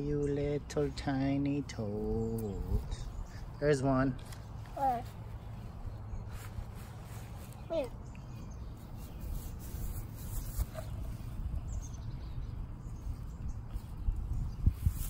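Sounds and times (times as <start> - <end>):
low rumble on microphone: 9.4 - 15.0.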